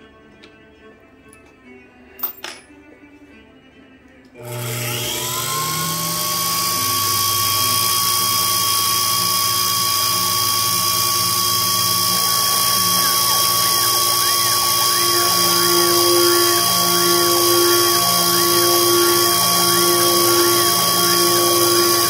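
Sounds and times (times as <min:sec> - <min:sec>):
milling machine spindle whine: 0:04.4 - 0:22.0
rising and falling motor tone: 0:04.4 - 0:22.0.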